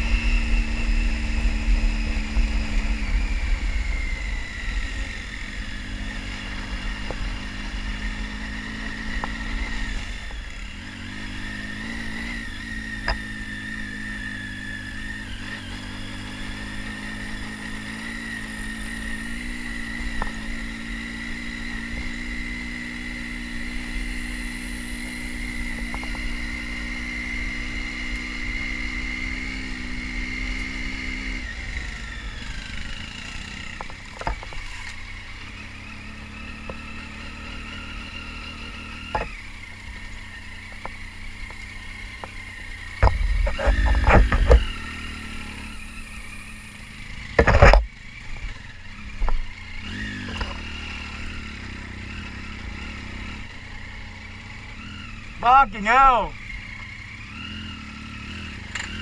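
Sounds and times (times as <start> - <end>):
high whine: 0.0 - 10.5
motorcycle engine running: 0.0 - 59.0
sharp clicks and knocks: 43.0 - 44.7, 47.3 - 47.9.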